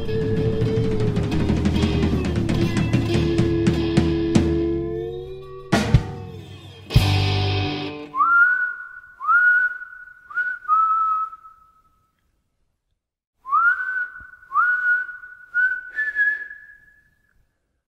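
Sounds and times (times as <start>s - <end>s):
whistled melody: 7.9s - 12.2s, 13.5s - 17.4s.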